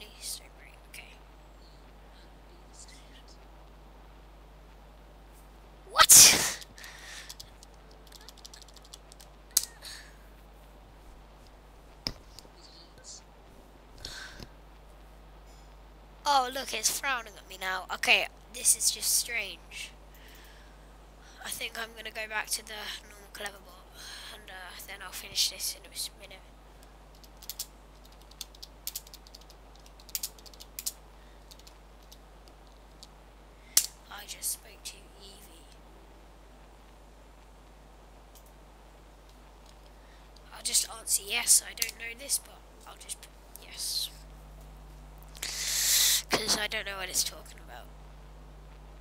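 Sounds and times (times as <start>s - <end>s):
keyboard clicks: 7.3s - 9.7s, 27.1s - 30.9s, 31.5s - 33.1s.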